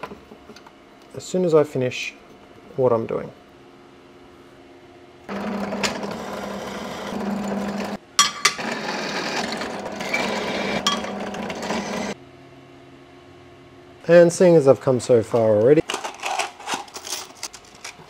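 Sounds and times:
drill press cutting steel: 5.3s - 12.2s.

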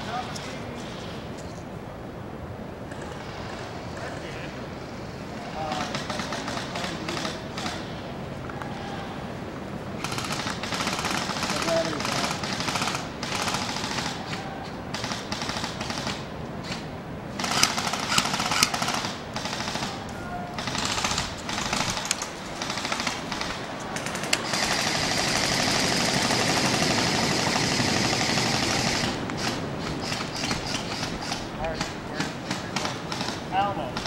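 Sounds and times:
airsoft guns firing bursts: 5.6s - 7.9s, 10.0s - 20.0s, 20.6s - 34.0s.

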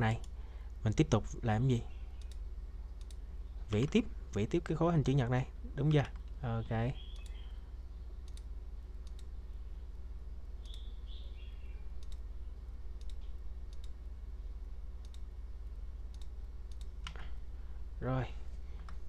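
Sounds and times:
steady low hum: 0.0s - 19.0s
computer mouse clicking: 2.2s - 2.4s, 3.0s - 4.0s, 8.2s - 9.3s, 12.0s - 12.3s, 13.0s - 14.0s, 15.0s - 15.3s, 16.1s - 17.2s.

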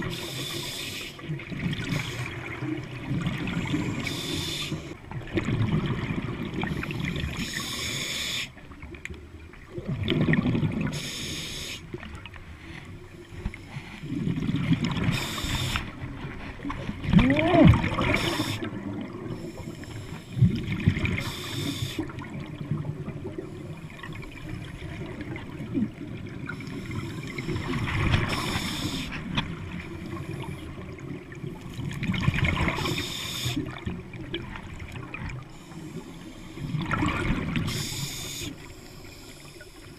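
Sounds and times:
regulator inhale hiss: 0.0s - 1.2s, 3.8s - 5.0s, 6.8s - 8.6s, 10.9s - 12.0s, 12.6s - 14.2s, 15.0s - 16.0s, 18.1s - 20.6s, 21.2s - 22.2s, 26.6s - 29.3s, 32.8s - 33.8s, 35.5s - 36.8s, 37.7s - 39.9s
exhaled bubbles rumbling: 1.3s - 4.0s, 4.8s - 7.6s, 8.7s - 11.0s, 11.9s - 21.4s, 22.0s - 33.0s, 36.6s - 37.9s.

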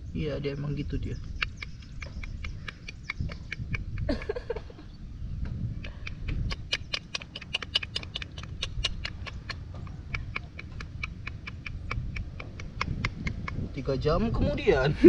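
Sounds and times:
rapid kissing clicks: 1.2s - 4.1s, 5.8s - 13.7s.

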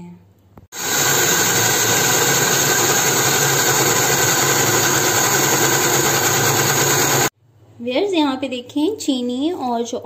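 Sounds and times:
electric blender motor running: 0.8s - 7.3s.

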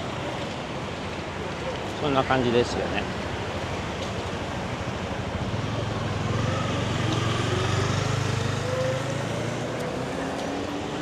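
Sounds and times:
road noise: 0.0s - 11.0s
small engine speeding up: 6.2s - 10.5s.

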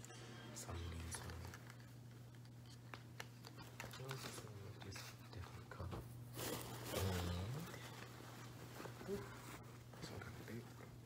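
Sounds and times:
low electrical hum: 0.0s - 11.0s
clothes and bag rustling: 6.3s - 10.7s.

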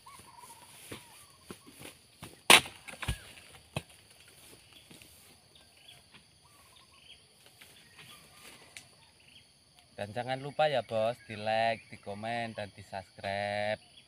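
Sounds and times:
chisel chopping into palm stalk: 2.2s - 4.0s.

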